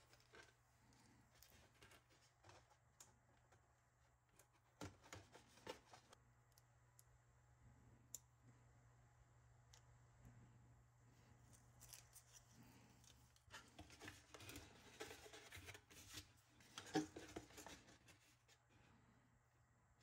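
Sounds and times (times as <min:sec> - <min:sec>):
light rustles of handling: 0:00.0 - 0:03.7, 0:04.3 - 0:06.2, 0:11.2 - 0:18.8.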